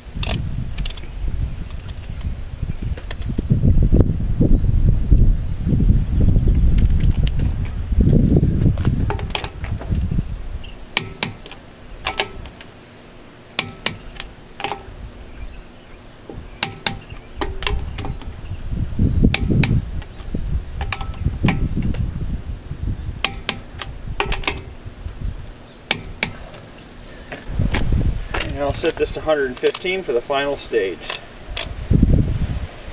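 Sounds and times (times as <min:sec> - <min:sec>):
torque wrench clicking: 0:10.9 - 0:12.7, 0:13.6 - 0:14.9, 0:16.6 - 0:18.4, 0:19.3 - 0:22.0, 0:23.2 - 0:24.8, 0:25.9 - 0:26.8.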